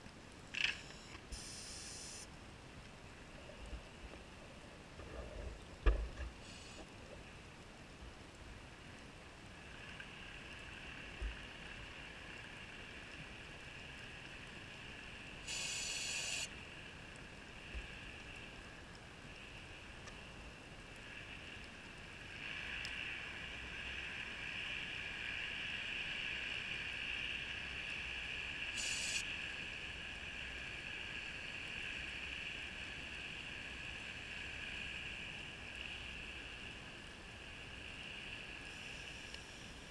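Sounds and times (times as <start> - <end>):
underwater mechanical whine: 0.5 - 2.3, 8.5 - 39.9
short hissing bursts: 1.3 - 2.3, 6.4 - 6.8, 15.4 - 16.5, 28.8 - 29.2.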